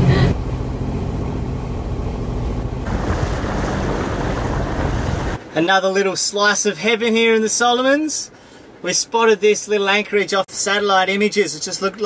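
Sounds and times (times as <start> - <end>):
boat engine humming: 0.0 - 5.6
wind: 0.0 - 12.0
water rushing: 1.9 - 5.4.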